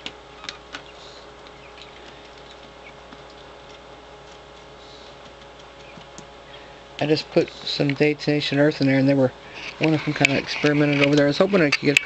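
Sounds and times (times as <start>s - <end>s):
quail ticks and taps: 0.0s - 6.3s
steady low hum: 0.0s - 12.0s.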